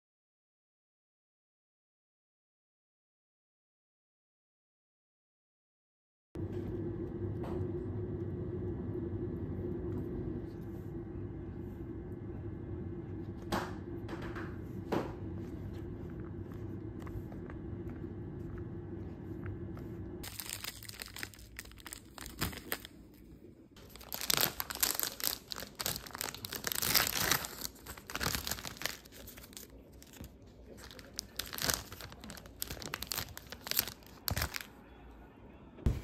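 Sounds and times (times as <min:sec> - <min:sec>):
plastic wrapper crinkling: 0:20.2 - 0:34.8.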